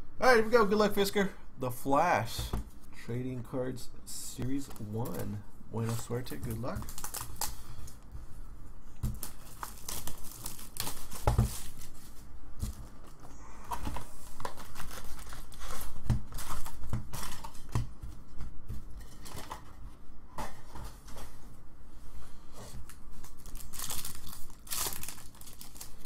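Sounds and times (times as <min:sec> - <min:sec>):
foil packs rustling: 0:04.6 - 0:07.8, 0:09.1 - 0:13.2, 0:13.9 - 0:17.7, 0:23.2 - 0:26.0
plastic wrap tearing and crinkling: 0:05.0 - 0:07.6, 0:09.1 - 0:13.2, 0:14.0 - 0:17.7, 0:23.2 - 0:26.0.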